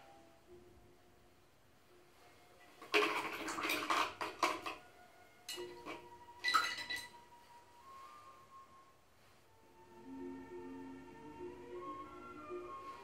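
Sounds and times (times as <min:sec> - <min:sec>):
brushes clinking against glass jar: 0:05.5 - 0:07.2
glass ringing: 0:05.5 - 0:07.3.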